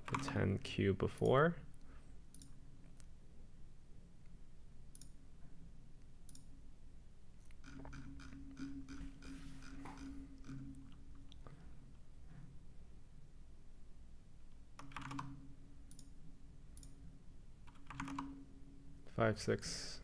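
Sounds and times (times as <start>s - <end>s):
low steady hum: 0.0s - 20.0s
computer mouse clicks: 2.3s - 3.1s, 4.9s - 5.2s, 6.2s - 6.5s, 14.8s - 16.2s, 16.8s - 17.0s, 17.6s - 18.4s
scroll wheel ticks: 17.7s - 18.4s.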